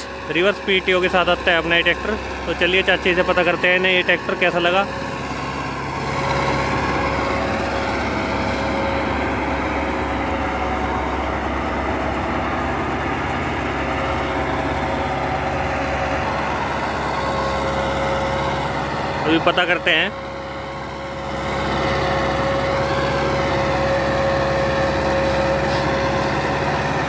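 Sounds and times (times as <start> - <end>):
tractor diesel engine running: 0.0 - 27.0
rotavator churning soil: 21.3 - 27.0.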